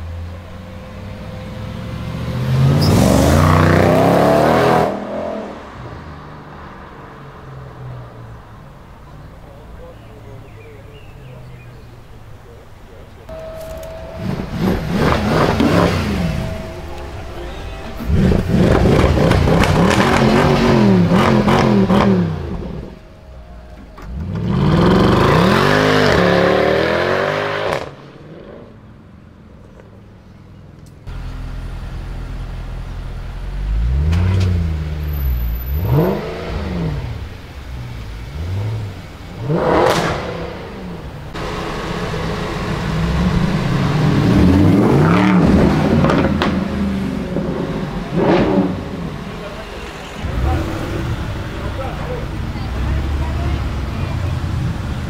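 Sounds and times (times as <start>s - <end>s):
car engines revving: 0.0s - 55.0s
throttle blips: 13.3s - 20.5s.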